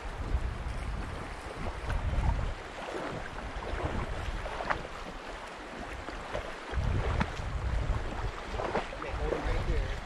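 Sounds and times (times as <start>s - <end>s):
river current rushing: 0.0s - 10.0s
wind rumbling on microphone: 0.0s - 10.0s.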